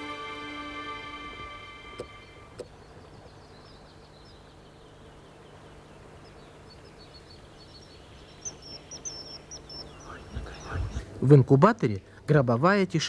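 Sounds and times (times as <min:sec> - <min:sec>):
steady low hum: 0:00.1 - 0:11.3
small birds chirping: 0:02.0 - 0:12.2.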